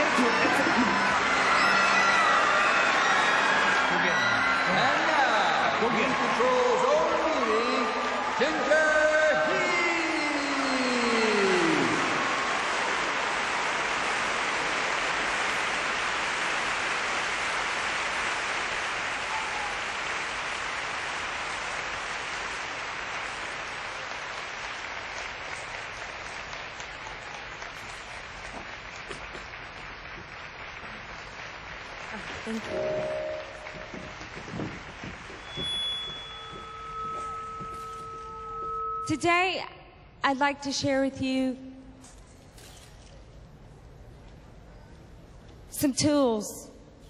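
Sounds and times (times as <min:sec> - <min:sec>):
whoops from audience: 0:00.0 - 0:05.0, 0:19.2 - 0:20.0
audience applauding: 0:00.0 - 0:39.2.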